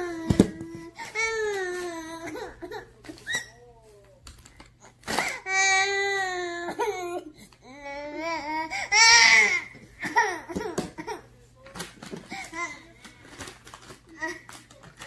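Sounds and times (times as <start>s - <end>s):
baby crying: 0.0s - 3.6s, 5.1s - 11.1s.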